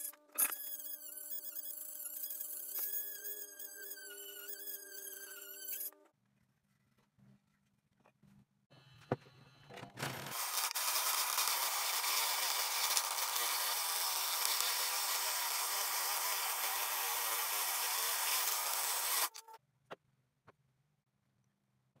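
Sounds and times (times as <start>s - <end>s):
scroll saw cutting wood: 0.0s - 6.0s, 10.2s - 19.6s.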